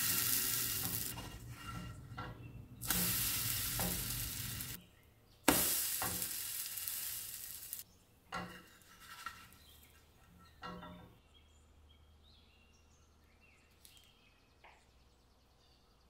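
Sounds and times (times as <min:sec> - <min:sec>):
bread sizzling in hot oil: 0:00.0 - 0:01.5, 0:02.8 - 0:04.8, 0:05.5 - 0:07.8.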